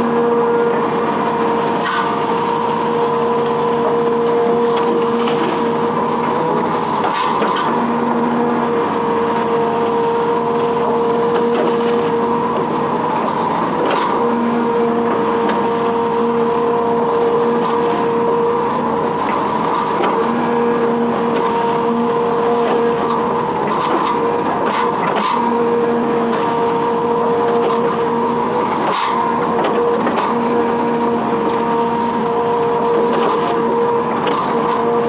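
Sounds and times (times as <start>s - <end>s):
excavator diesel engine running: 0.0s - 35.0s.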